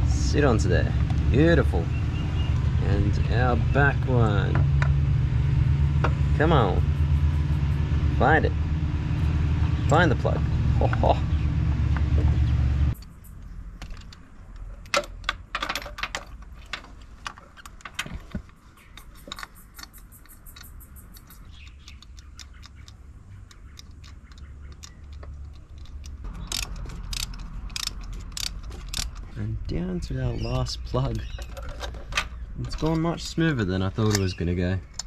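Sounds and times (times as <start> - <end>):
low rumble: 0.0 - 14.1
ratchet clicking: 18.8 - 29.3.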